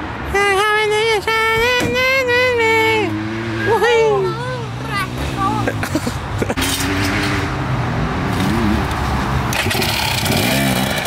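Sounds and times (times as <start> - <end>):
person speaking: 0.4 - 6.1
motorbike engines running: 1.0 - 7.6, 8.3 - 11.0.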